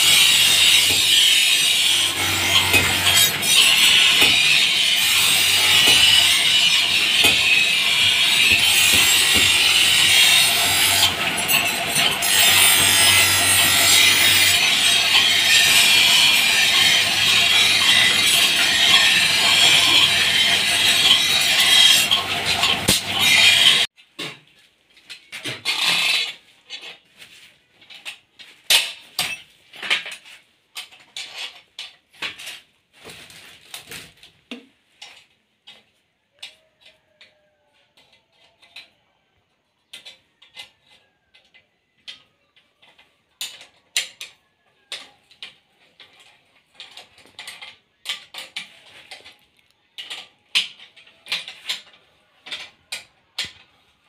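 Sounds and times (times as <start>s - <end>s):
steel blade on grinding wheel: 0.0s - 23.9s.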